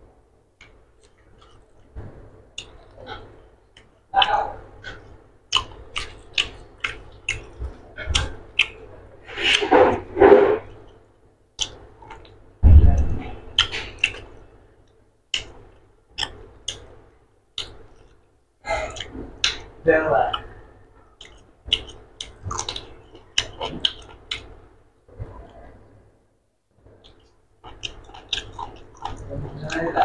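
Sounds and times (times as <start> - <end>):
mouth clicks and chewing smacks: 0.6 - 2.0, 2.6 - 8.9, 11.6 - 12.4, 13.6 - 14.4, 15.3 - 17.0, 17.6 - 19.7, 21.2 - 24.5, 26.9 - 30.0
hand mixing food on steel plate: 0.7 - 10.8
dull thump: 12.6 - 13.2.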